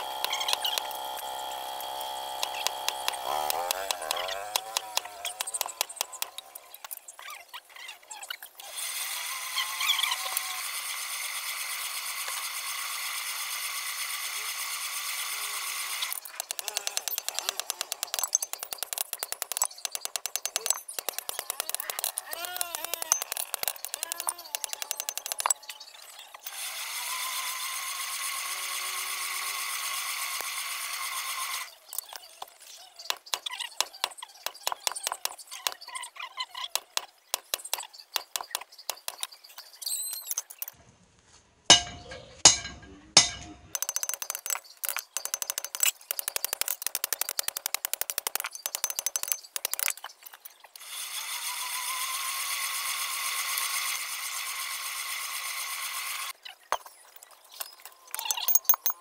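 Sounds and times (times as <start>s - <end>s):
forge blower whine: 0.0s - 6.6s
hammer blows on steel anvil: 41.7s - 43.7s.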